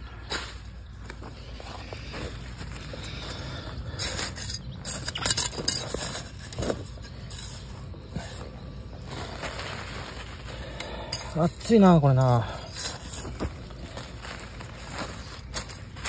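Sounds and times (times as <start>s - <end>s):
soil scraped by hand: 0.0s - 16.0s
plastic film crinkling: 8.8s - 16.0s.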